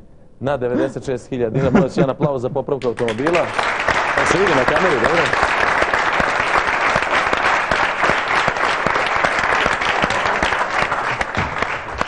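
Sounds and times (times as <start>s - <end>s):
audience applauding: 2.9s - 12.0s.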